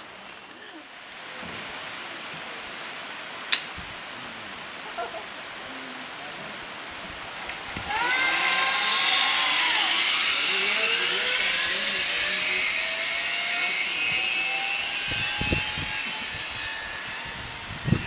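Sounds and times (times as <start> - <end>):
zip-line trolley whirring on cable: 7.3 - 18.0.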